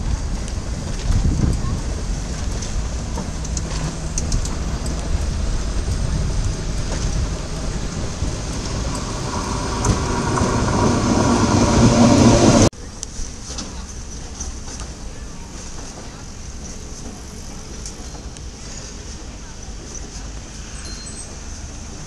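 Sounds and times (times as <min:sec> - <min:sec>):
steam hissing from locomotive: 0:02.1 - 0:12.7.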